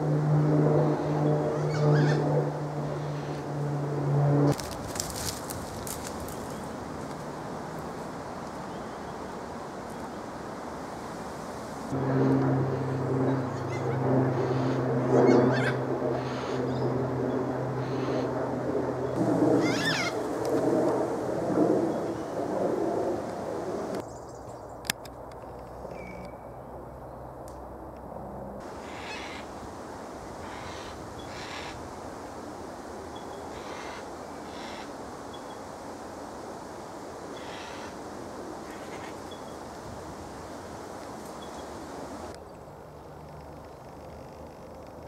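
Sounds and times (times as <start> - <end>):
cockatoo calls: 1.6 - 2.2, 19.6 - 20.2, 28.7 - 29.5, 30.4 - 31.8, 33.4 - 34.9, 37.3 - 38.0, 38.6 - 39.2.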